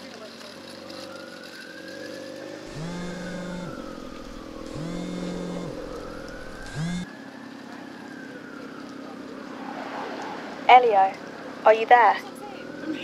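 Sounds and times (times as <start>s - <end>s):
road traffic: 2.4s - 13.0s
mobile phone vibrating: 2.7s - 7.0s.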